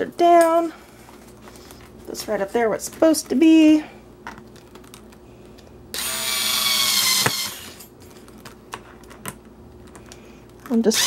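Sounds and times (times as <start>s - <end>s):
cordless drill running: 5.9s - 7.8s.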